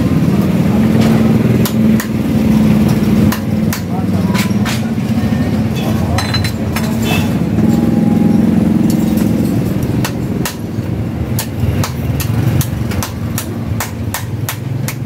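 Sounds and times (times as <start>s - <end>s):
engine hum: 0.0s - 15.0s
hand tool tapping metal: 2.8s - 7.9s, 8.8s - 15.0s.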